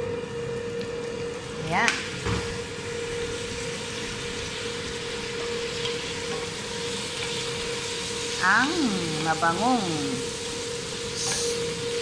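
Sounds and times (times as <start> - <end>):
frying sizzle in a pot: 0.0 - 12.0
steady hum: 7.8 - 12.0.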